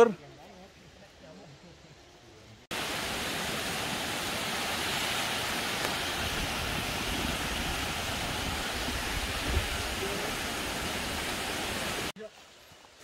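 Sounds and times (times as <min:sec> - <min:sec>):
mountain stream water rushing: 0:02.7 - 0:13.0.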